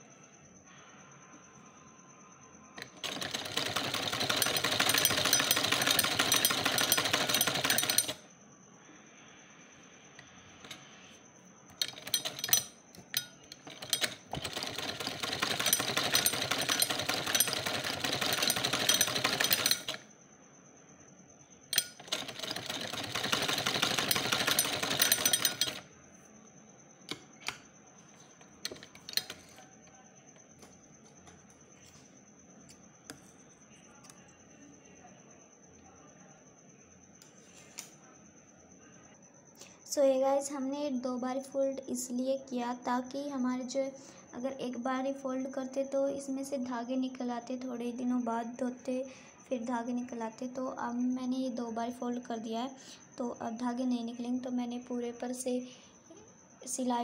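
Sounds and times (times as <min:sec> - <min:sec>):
sewing machine stitching: 0:02.8 - 0:08.2, 0:11.7 - 0:20.0, 0:21.7 - 0:25.8, 0:28.6 - 0:29.6.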